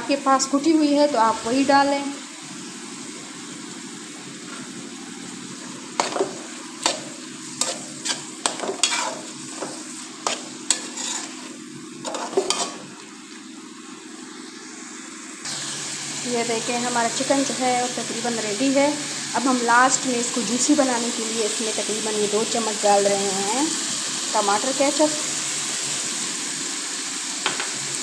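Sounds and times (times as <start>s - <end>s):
food sizzling in a frying pan: 0.0s - 28.0s
metal spatula scraping pan: 6.0s - 12.9s.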